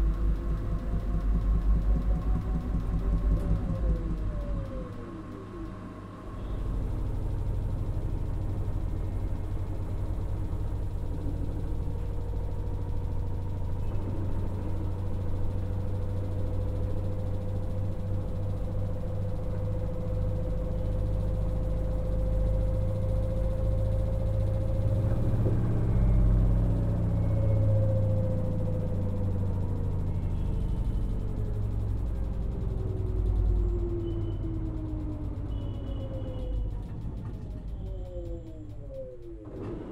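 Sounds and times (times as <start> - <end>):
faint rising whine: 0.0 - 39.9
washing machine tumbling: 36.6 - 39.9.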